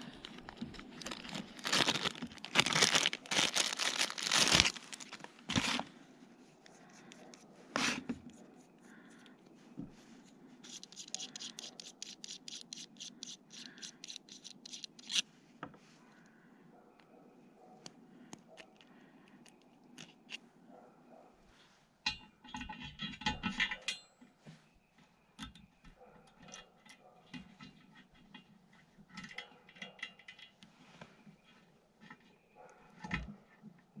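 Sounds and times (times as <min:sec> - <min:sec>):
plastic bag crinkling and tearing: 0:00.0 - 0:05.9.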